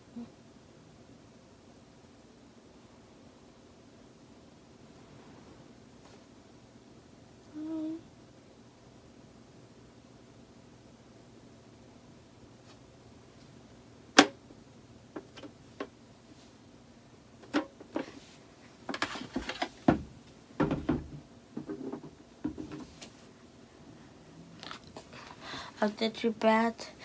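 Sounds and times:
taps and rattles: 0:18.8 - 0:22.9.

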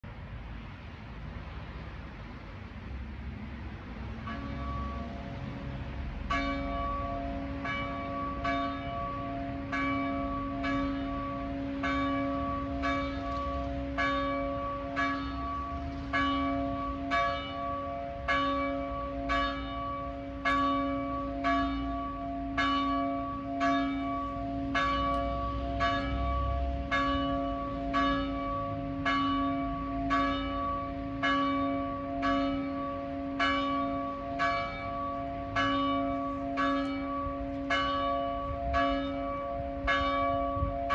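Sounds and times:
church bell tolling: 0:04.2 - 0:40.9.

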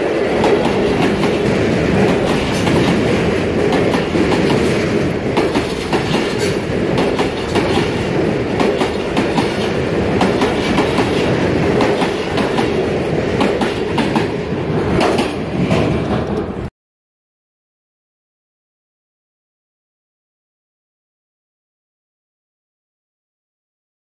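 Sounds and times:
train wheels rumbling on rail: 0:00.0 - 0:16.7
wheels clacking over rail joints: 0:00.0 - 0:16.7.

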